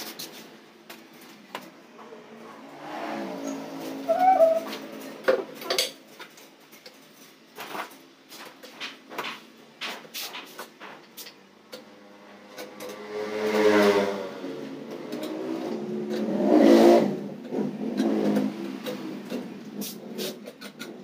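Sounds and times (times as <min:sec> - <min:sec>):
vehicle engine revving: 0:01.9 - 0:05.3, 0:11.9 - 0:20.4
clinks and knocks of tiles and tools: 0:04.9 - 0:11.9.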